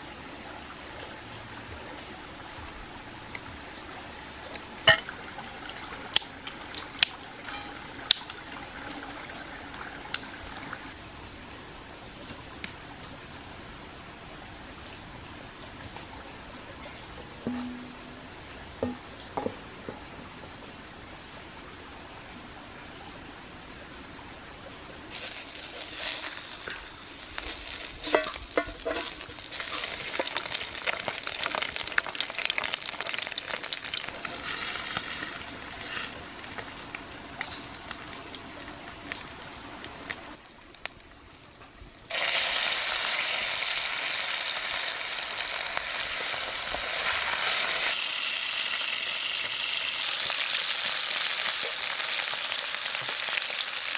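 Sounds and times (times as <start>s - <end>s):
fat sizzling in a wok: 25.1s - 37.6s, 42.1s - 53.9s
chopsticks scraping a pan: 25.2s - 26.8s, 27.4s - 30.2s.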